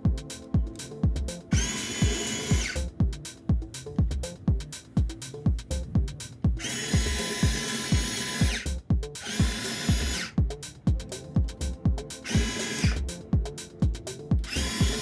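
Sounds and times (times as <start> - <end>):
music with kick-drum beat: 0.0 - 15.0
small electric motors whining: 1.5 - 2.8, 6.6 - 10.4, 12.2 - 13.0, 14.4 - 15.0.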